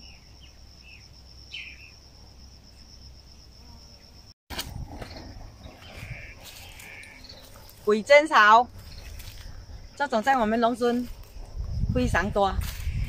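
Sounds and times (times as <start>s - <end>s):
bird chirps: 0.0s - 2.0s
high-pitched insect trill: 0.0s - 13.0s.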